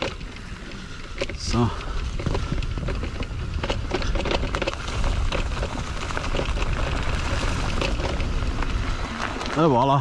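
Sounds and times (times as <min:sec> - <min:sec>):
bike clicking and rattling: 0:00.0 - 0:10.0
bike tyres on dirt trail: 0:00.0 - 0:10.0
wind rumble on microphone: 0:00.0 - 0:10.0.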